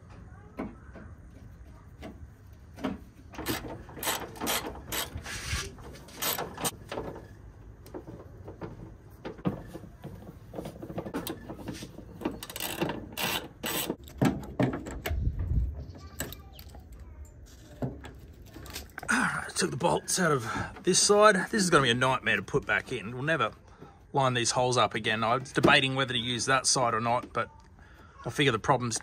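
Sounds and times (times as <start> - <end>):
hand ratchet and spanner clicking: 3.4 - 5.2, 6.2 - 6.7, 12.4 - 14.1.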